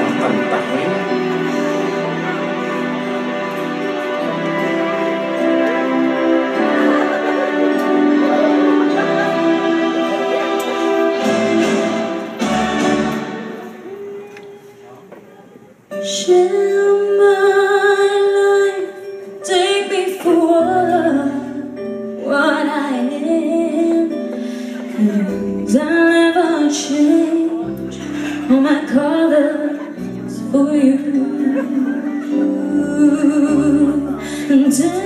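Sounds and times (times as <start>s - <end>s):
instrumental accompaniment: 0.0s - 35.0s.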